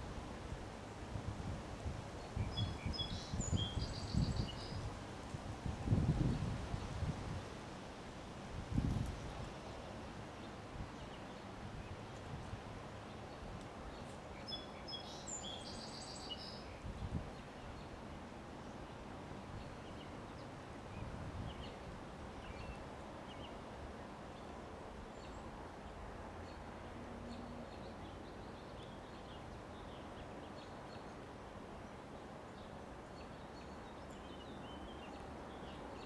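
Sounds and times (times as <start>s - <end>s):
wind rustling leaves: 0.0s - 36.0s
bird chirping: 14.0s - 16.6s.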